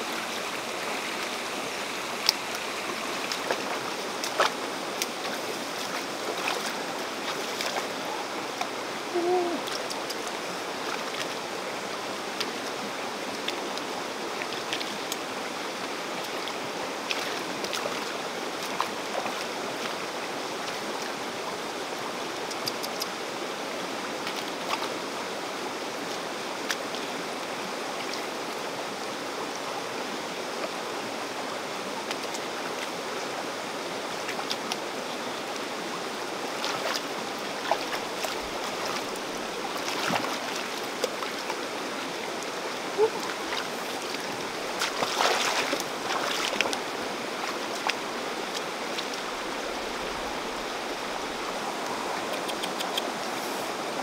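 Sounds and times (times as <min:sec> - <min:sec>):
stream running over rocks: 0:00.0 - 0:54.0
hands splashing among stones: 0:43.1 - 0:46.8.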